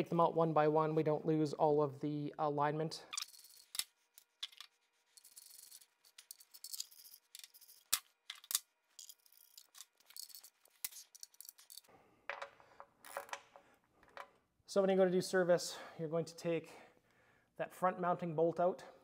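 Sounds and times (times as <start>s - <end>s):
soft rubbing: 3.3s - 7.8s.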